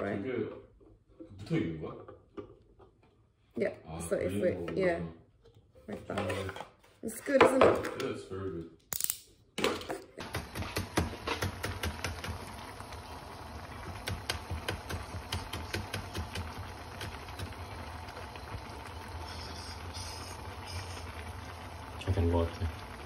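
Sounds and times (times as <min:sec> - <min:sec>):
broth boiling with bubbling pops: 0:10.2 - 0:23.0.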